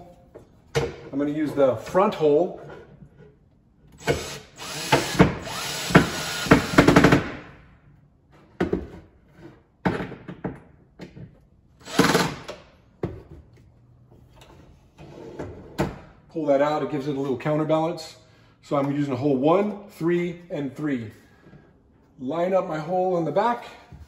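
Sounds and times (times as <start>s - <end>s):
cordless drill driving screw: 4.0s - 7.2s, 11.8s - 12.5s.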